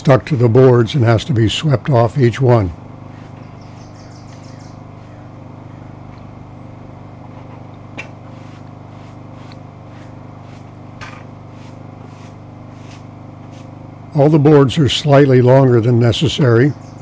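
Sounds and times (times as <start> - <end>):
brush sweeping wet sawdust: 0.0 - 4.1, 7.3 - 14.4
low machine hum: 0.0 - 17.0.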